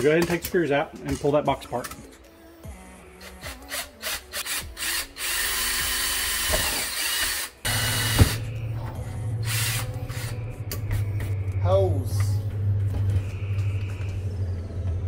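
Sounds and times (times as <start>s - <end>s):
cordless drill boring plastic: 3.7s - 8.1s.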